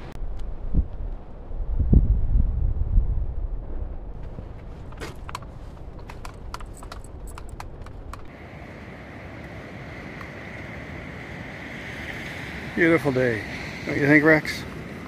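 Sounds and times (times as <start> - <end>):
low wind rumble: 0.0 - 15.0
footsteps snapping twigs: 4.2 - 8.3
surf hiss: 8.3 - 15.0.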